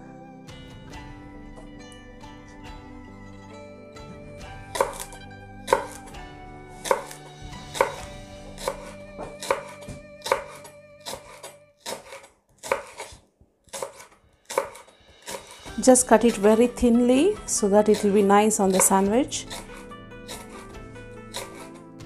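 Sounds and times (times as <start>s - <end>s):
soft background music: 0.0s - 11.9s, 14.5s - 22.0s
knife chopping on wooden board: 4.7s - 6.1s, 6.8s - 16.5s, 17.6s - 21.8s.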